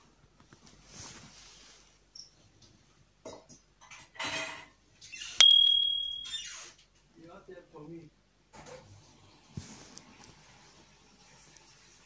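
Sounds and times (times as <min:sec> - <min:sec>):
bell-like ding: 0:05.4 - 0:06.4
faint rustles and clinks: 0:05.4 - 0:06.4.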